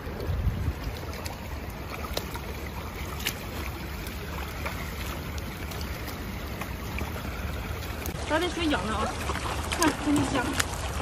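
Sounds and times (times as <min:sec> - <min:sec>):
wind rumble on microphone: 0:00.0 - 0:02.1
boots wading through water: 0:00.0 - 0:11.0.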